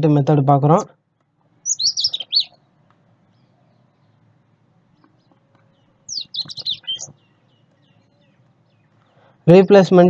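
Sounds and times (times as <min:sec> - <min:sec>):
bird chirping: 0:00.0 - 0:10.0
faint background noise: 0:00.0 - 0:10.0.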